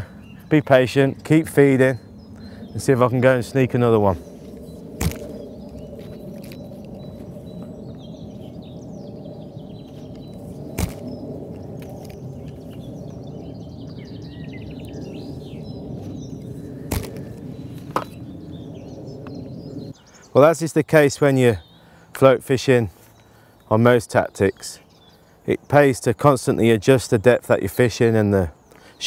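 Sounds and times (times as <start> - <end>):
small birds chirping: 0.0 - 29.0
low rumble: 1.2 - 20.0
sharp cracks: 4.9 - 7.0, 10.7 - 12.8, 16.8 - 18.2.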